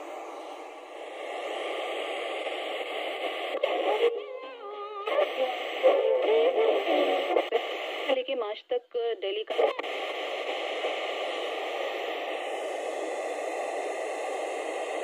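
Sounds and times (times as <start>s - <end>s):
radio static hiss: 0.0s - 15.0s
radio whistles: 1.2s - 8.2s.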